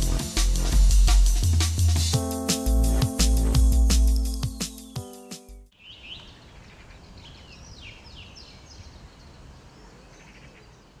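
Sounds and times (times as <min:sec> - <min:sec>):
small birds chirping: 0:03.8 - 0:11.0.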